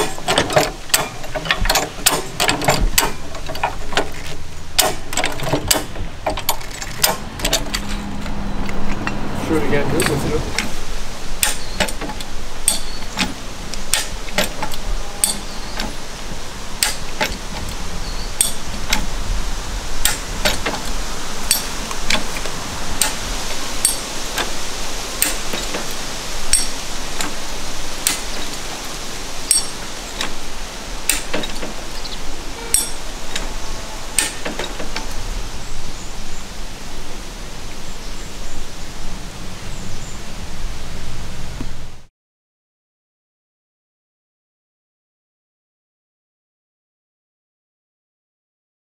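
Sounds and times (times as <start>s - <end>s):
farm jack clicking: 0.0s - 9.2s, 11.4s - 16.0s, 28.0s - 28.6s, 31.1s - 31.8s.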